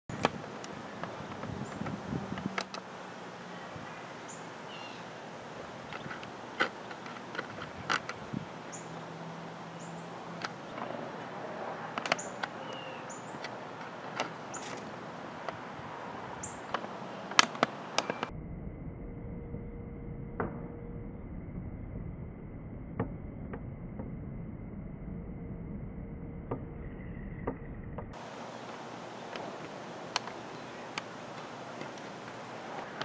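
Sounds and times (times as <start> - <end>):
sharp clicks: 0.1 - 2.9, 11.9 - 15.6, 16.5 - 18.3
high bird chirps: 3.8 - 5.2, 8.6 - 9.0, 9.7 - 10.8, 12.2 - 13.5, 16.4 - 17.3
faint high-pitched tone: 18.0 - 22.8.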